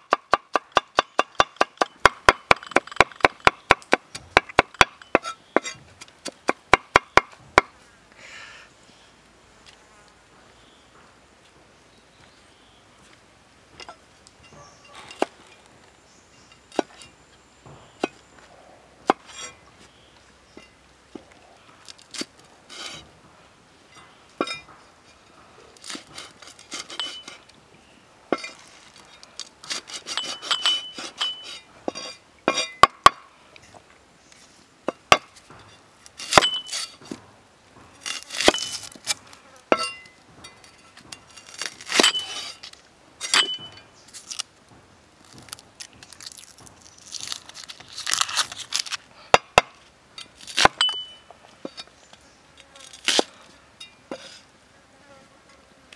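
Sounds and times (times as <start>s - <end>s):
metallic ring from blade: 43.2s - 43.8s, 50.8s - 51.3s.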